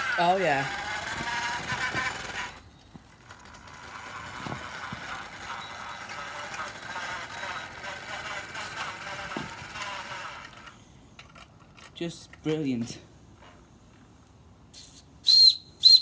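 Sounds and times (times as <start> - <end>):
small engine clattering: 0.0 - 12.6.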